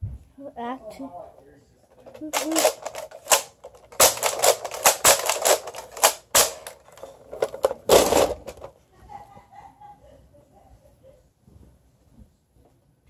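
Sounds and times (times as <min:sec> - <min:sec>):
sharp clicks and clatters: 0:01.9 - 0:08.7.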